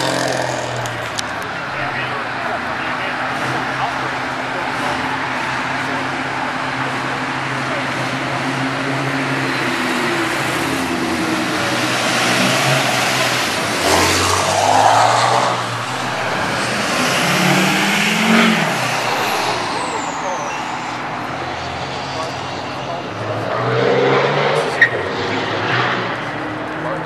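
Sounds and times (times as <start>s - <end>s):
cars and trucks driving past: 0.0s - 27.0s
engine revving: 0.0s - 27.0s.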